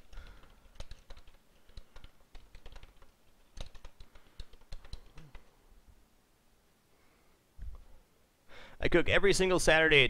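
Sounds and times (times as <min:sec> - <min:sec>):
keyboard typing: 0:00.0 - 0:05.5.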